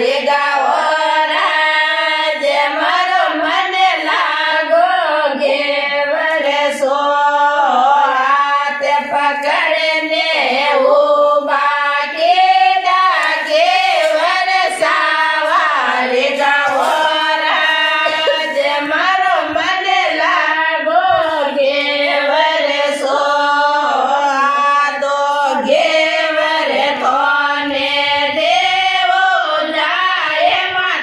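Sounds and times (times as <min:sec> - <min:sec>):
women singing folk song: 0:00.0 - 0:31.0.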